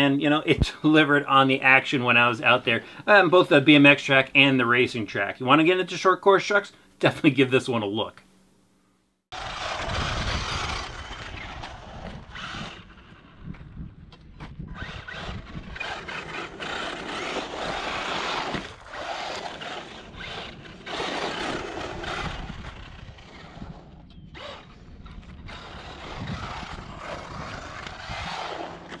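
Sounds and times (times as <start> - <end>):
electric motor surging: 9.3 - 13.5, 14.7 - 29.0
tyres scrabbling over dirt: 9.3 - 29.0.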